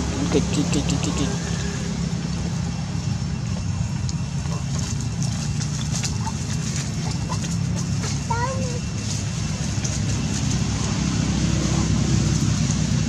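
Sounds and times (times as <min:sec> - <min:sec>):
crackling of dry leaf litter: 0:03.7 - 0:13.0.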